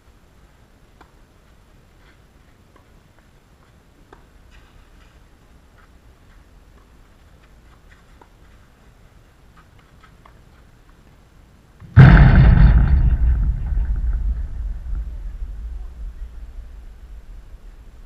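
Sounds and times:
loud thump: 11.8 - 17.8
low rumble: 11.9 - 18.0.

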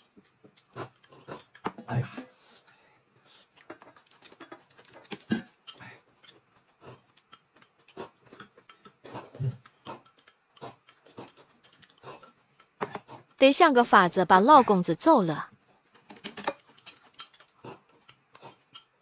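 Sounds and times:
chewing and lip smacks: 6.6 - 12.7.

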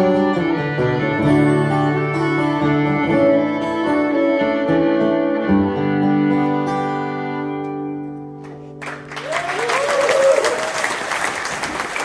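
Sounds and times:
fiddle and guitar chord: 0.0 - 8.6
audience applause with cheers: 8.8 - 12.0.

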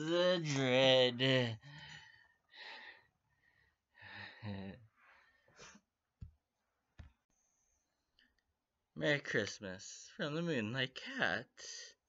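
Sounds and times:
person breathing softly: 1.6 - 5.9.

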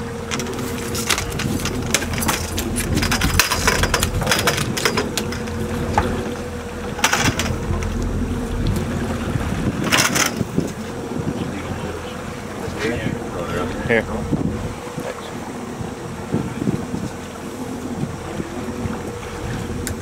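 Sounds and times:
boat engine rumbling: 0.0 - 20.0
fish flopping on boat deck: 0.2 - 11.2.

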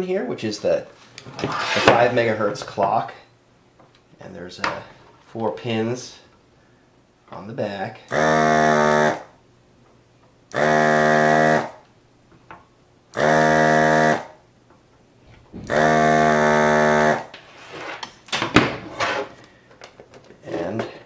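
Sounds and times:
desoldering vacuum pump buzzing: 8.1 - 9.3, 10.5 - 11.8, 13.1 - 14.4, 15.5 - 17.3.

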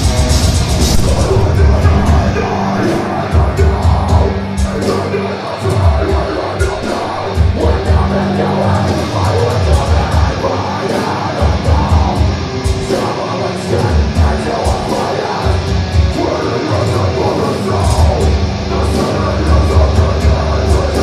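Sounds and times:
rapid kick drum: 0.0 - 4.9
distorted guitars and bass: 0.0 - 21.0
metal band playing live: 0.0 - 21.0.

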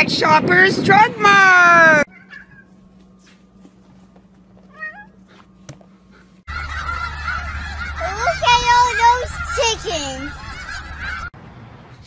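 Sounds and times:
cat meowing: 2.1 - 2.7, 4.7 - 5.2
geese calling: 4.7 - 11.4.

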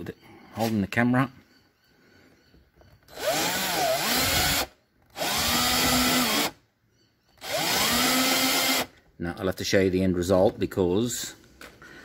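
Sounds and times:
cordless drill with hole saw: 3.1 - 6.6, 7.4 - 9.0.

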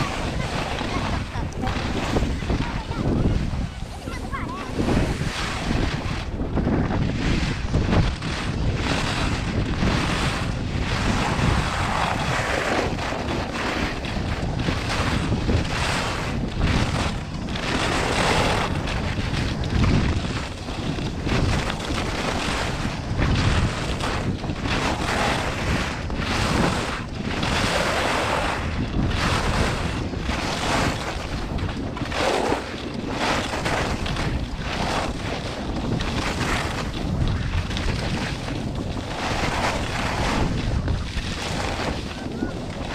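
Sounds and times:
skis scraping on icy snow: 0.0 - 42.9
wind rushing over microphone: 0.0 - 42.9.

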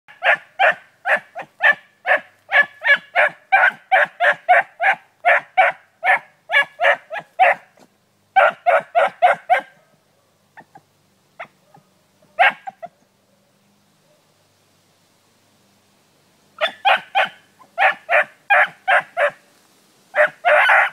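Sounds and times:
hound barking: 0.1 - 7.8, 8.4 - 10.8, 11.4 - 13.0, 16.6 - 19.4, 20.1 - 20.9.

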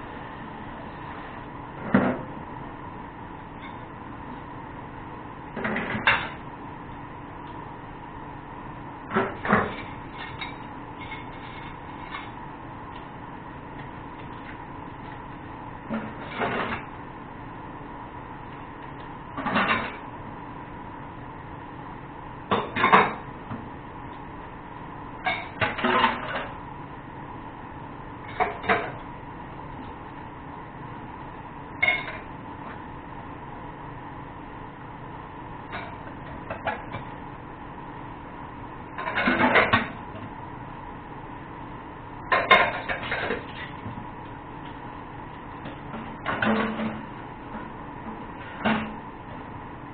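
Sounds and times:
pots and utensils clattering: 39.0 - 40.0, 42.3 - 43.8.

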